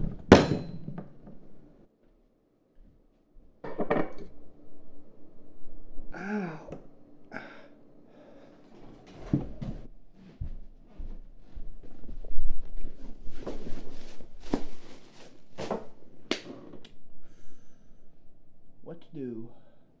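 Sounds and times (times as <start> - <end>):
man groaning: 6.1 - 7.7
man gasping: 6.2 - 8.6, 19.5 - 20.0
shuffling footsteps: 8.6 - 15.9.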